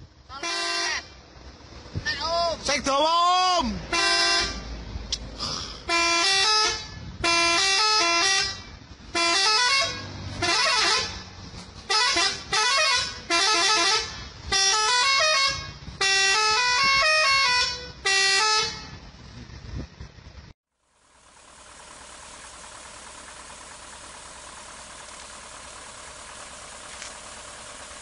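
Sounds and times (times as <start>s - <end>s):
musical truck horn blasts: 0.3s - 1.2s, 3.8s - 4.8s, 5.8s - 19.2s.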